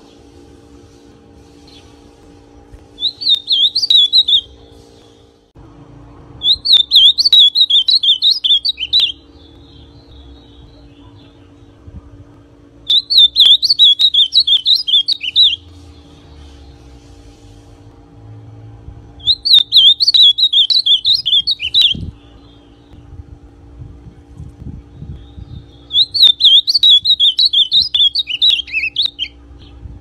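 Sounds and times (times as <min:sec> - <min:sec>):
bird warbling song: 0:03.0 - 0:05.2, 0:06.4 - 0:11.8, 0:12.9 - 0:16.9, 0:19.2 - 0:23.1, 0:24.9 - 0:29.8.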